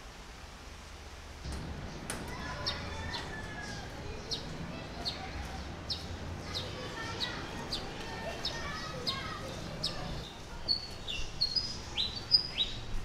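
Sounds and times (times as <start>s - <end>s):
steady low hum: 0.7s - 7.8s
small bird chirping: 4.2s - 12.9s.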